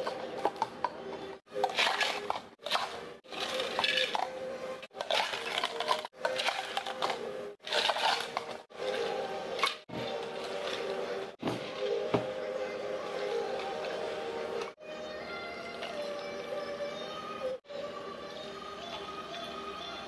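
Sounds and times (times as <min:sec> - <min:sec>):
ice cubes clinking in plastic cups: 0:01.6 - 0:08.6.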